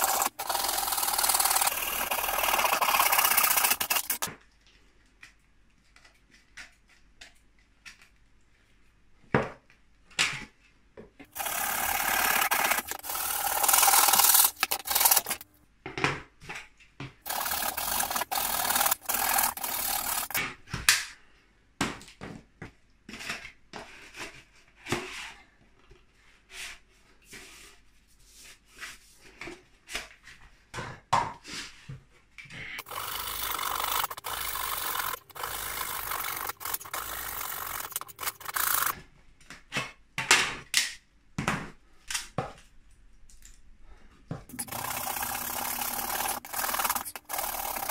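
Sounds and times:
handsaw cutting plastic pipe: 0.0s - 4.3s, 11.3s - 15.5s, 17.2s - 20.4s, 32.8s - 39.0s, 44.5s - 47.9s.

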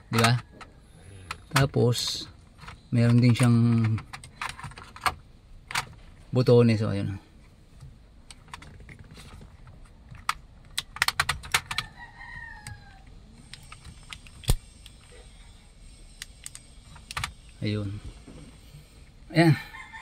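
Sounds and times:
plastic switch clicks and rattles: 0.1s - 0.7s, 1.3s - 5.9s, 10.1s - 11.9s.

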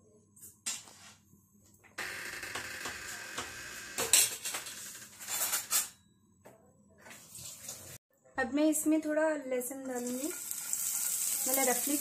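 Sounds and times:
oil hissing and crackling in pan: 10.0s - 12.0s.

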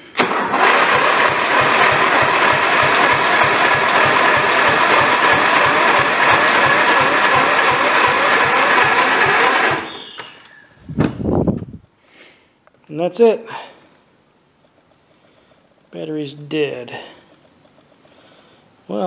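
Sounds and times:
electric starter cranking engine: 0.1s - 10.9s.

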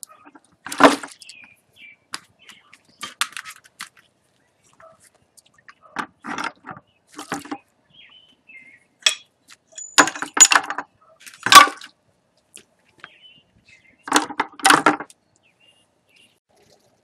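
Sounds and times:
metal parts clinking in bucket: 9.0s - 11.9s.

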